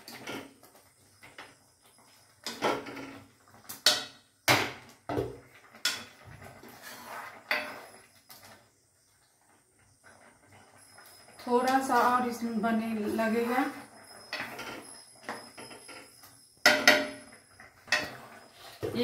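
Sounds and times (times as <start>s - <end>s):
plastic spatula scraping metal pan: 6.5s - 8.0s, 17.9s - 19.0s.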